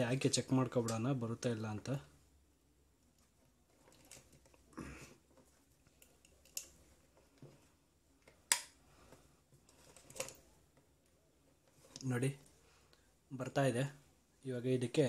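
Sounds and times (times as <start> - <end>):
plug and switch clicks: 8.5 - 8.8
handling rustle: 9.1 - 12.6.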